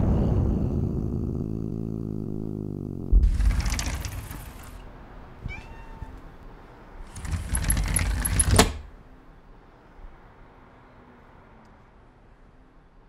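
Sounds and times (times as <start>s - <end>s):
metal mesh screen rattling: 3.2s - 4.8s
cat meowing: 5.4s - 6.4s.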